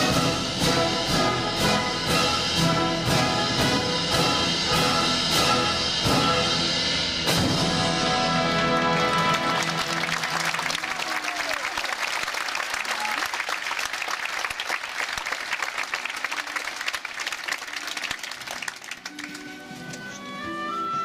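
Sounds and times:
audience applauding: 8.3 - 20.1.

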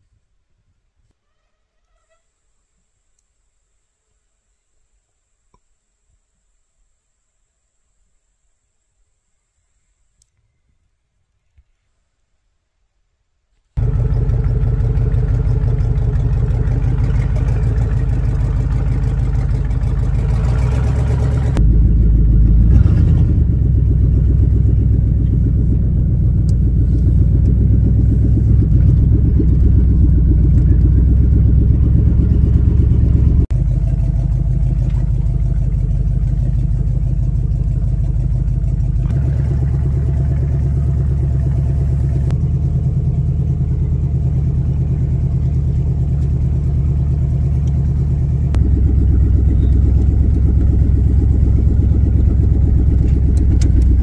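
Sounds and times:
vehicle engine rumbling: 13.8 - 54.0.

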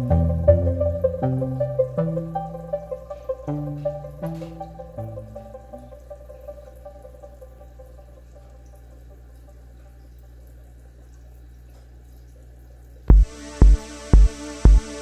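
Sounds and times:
electronic music with kick drum: 0.0 - 6.0, 13.1 - 15.0
water trickling: 0.0 - 15.0.

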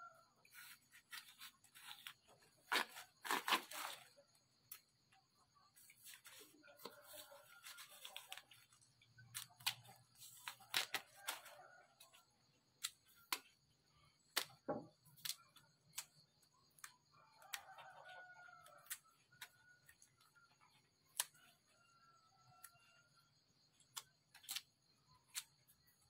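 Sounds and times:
peel snapping and tearing: 9.3 - 11.5, 15.2 - 16.1, 23.9 - 24.7.

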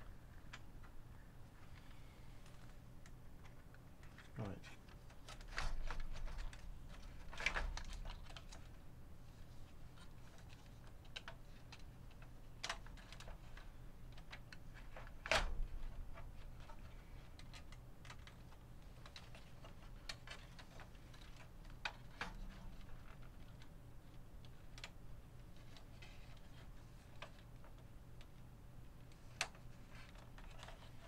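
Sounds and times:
clicks and knocks of handling: 0.3 - 1.0, 1.7 - 8.8, 9.9 - 31.0.

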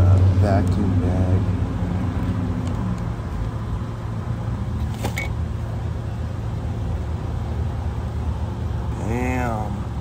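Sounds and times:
vehicle engine idling: 0.0 - 10.0.

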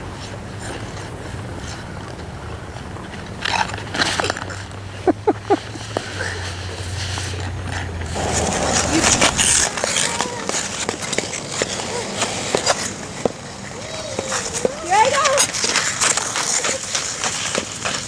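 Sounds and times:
wind: 0.0 - 18.0
ice skate blades scraping: 0.1 - 18.0.

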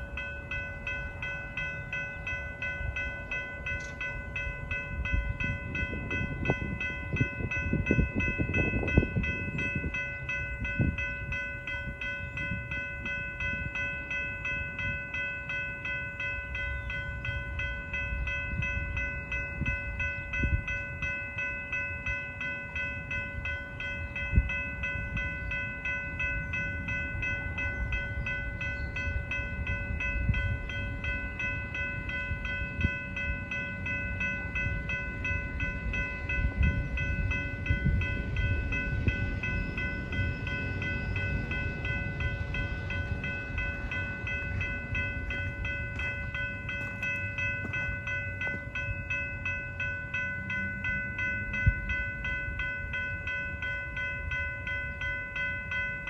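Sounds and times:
crossing bell ringing: 0.0 - 56.0
freight train rumble: 0.0 - 56.0
train thumps and clanks: 36.2 - 49.2.

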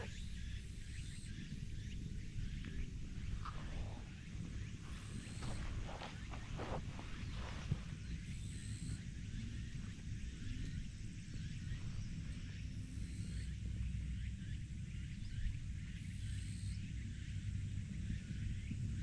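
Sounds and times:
birds chirping: 0.0 - 13.5
wind rumble on microphone: 0.0 - 19.0.

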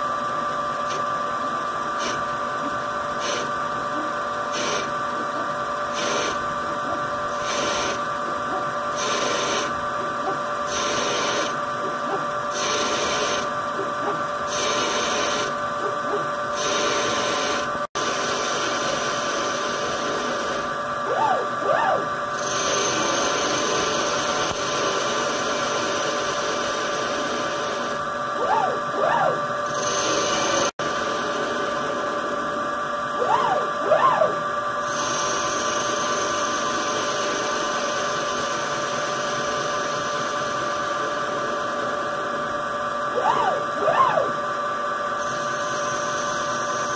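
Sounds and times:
drive motors whining: 0.0 - 17.8, 20.0 - 24.6, 27.8 - 30.7, 33.2 - 35.0, 43.1 - 44.6
lathe machine hum: 0.0 - 46.9.

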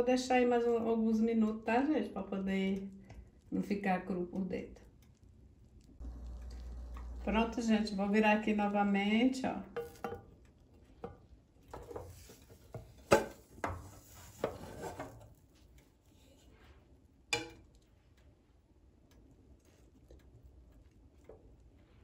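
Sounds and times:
frying pans knocking and scraping: 9.7 - 10.4, 11.0 - 15.3.

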